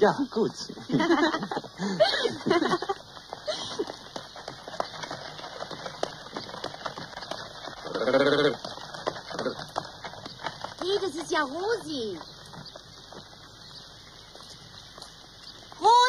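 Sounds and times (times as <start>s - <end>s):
horse hooves on cobblestones: 0.0s - 16.0s
footsteps on cobblestones: 0.2s - 16.0s
quavering animal call: 6.0s - 13.1s.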